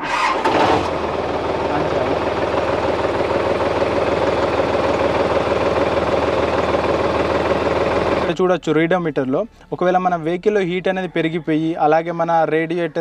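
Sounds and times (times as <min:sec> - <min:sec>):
tractor diesel engine idling: 0:00.1 - 0:08.4.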